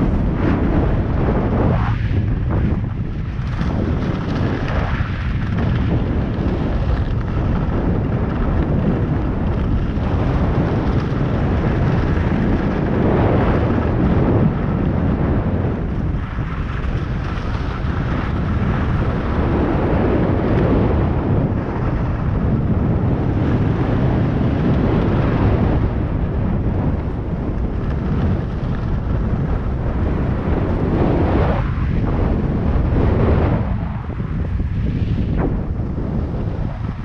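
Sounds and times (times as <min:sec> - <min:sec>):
wind buffeting microphone: 0:00.0 - 0:37.0
skis sliding on snow: 0:16.5 - 0:19.8.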